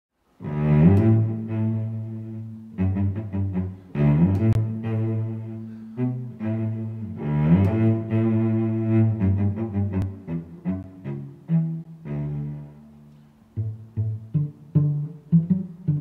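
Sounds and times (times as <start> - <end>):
low bowed strings: 0.4 - 16.0.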